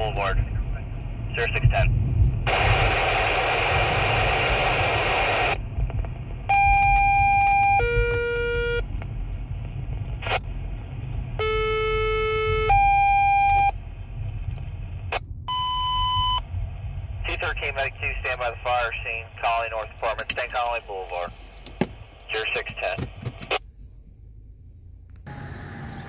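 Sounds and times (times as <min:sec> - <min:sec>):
radio static: 0:00.0 - 0:06.1, 0:10.0 - 0:10.5, 0:17.2 - 0:23.6
car road rumble: 0:00.0 - 0:26.0.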